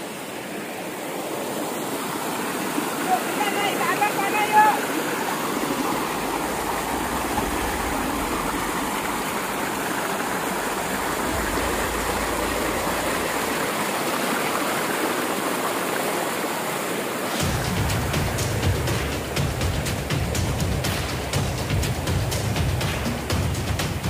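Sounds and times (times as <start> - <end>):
waterfall rushing: 0.0 - 24.0
background music with beat: 17.4 - 24.0.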